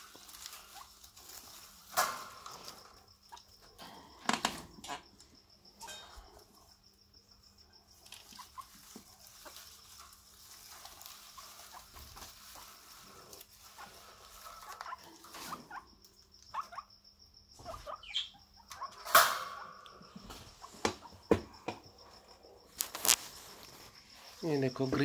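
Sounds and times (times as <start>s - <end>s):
guinea pigs chewing grass: 0.0s - 3.4s, 8.0s - 15.8s.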